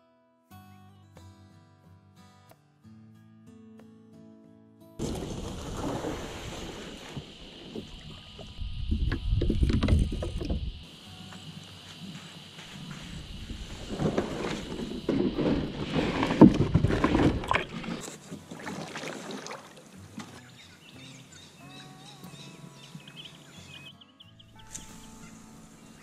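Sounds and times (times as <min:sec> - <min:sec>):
plastic hull scraping over mud: 0:05.0 - 0:08.2, 0:09.0 - 0:10.7, 0:12.9 - 0:19.6
water splashing: 0:05.0 - 0:10.8, 0:13.0 - 0:20.4
paddle strokes: 0:11.4 - 0:20.5
soft background music: 0:20.2 - 0:26.0.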